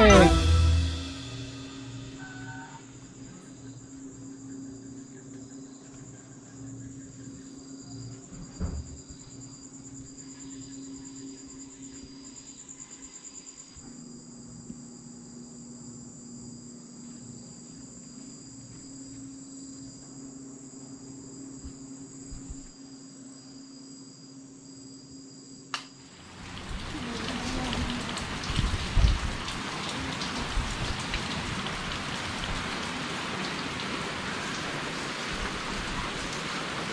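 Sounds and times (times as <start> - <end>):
insects trilling: 1.0 - 36.9
single click: 25.7 - 25.9.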